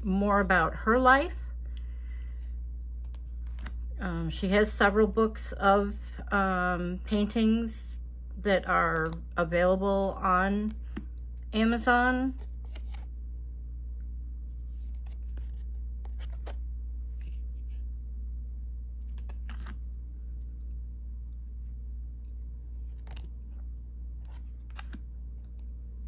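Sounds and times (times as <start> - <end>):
steady low hum: 0.0 - 26.0
cards rustling and flicking: 3.0 - 3.9, 10.6 - 11.3, 12.3 - 13.2, 14.5 - 17.8, 19.0 - 20.0, 22.6 - 25.8.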